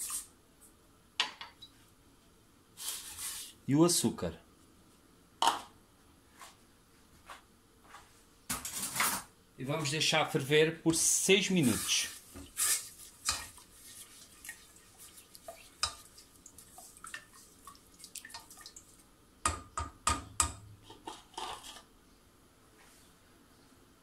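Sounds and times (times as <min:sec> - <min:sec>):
utensil stirring in metal pot: 0:11.6 - 0:19.0, 0:20.4 - 0:21.9
knocks on metal pot: 0:19.5 - 0:20.6.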